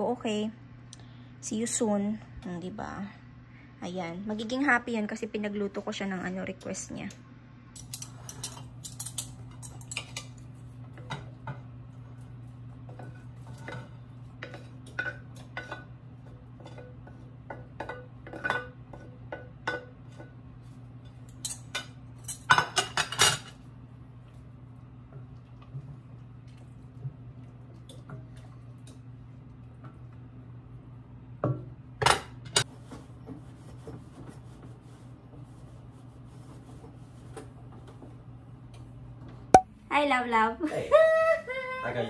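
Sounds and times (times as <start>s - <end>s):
steady low hum: 0.0s - 22.4s.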